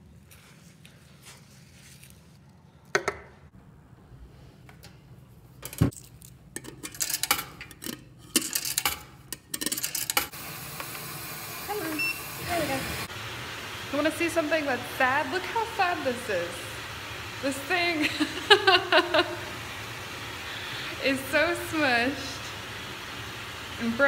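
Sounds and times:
washer coin slide clacking: 5.6s - 10.3s
coins clinking: 5.9s - 10.3s
steady hiss: 10.3s - 24.0s.

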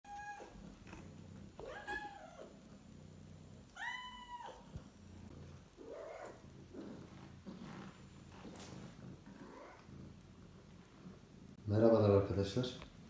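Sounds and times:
cat meowing: 0.1s - 0.6s, 1.6s - 2.5s, 3.7s - 4.7s.

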